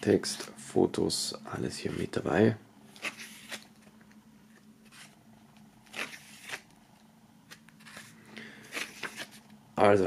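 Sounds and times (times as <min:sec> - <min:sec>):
paper pages turning: 0:02.9 - 0:06.8, 0:07.5 - 0:09.6.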